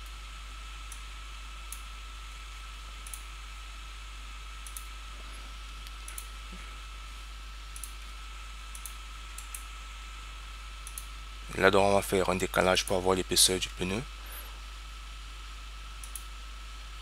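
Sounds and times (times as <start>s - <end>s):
faint constant whine: 0.0s - 17.0s
computer mouse clicking: 4.6s - 4.9s, 7.7s - 8.0s, 8.7s - 9.7s, 10.8s - 11.1s, 16.0s - 16.3s.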